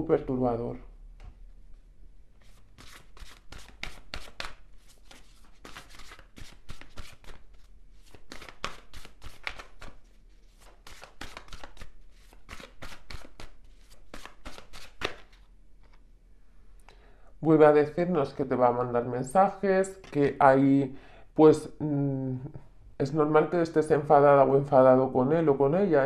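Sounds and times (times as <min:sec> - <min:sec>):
cards being shuffled: 0:02.4 - 0:16.0, 0:19.9 - 0:20.4.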